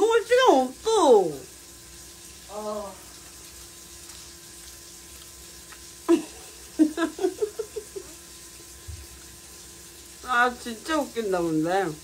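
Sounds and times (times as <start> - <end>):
faint steady hum: 0.0 - 12.0
woman laughing: 6.1 - 8.2.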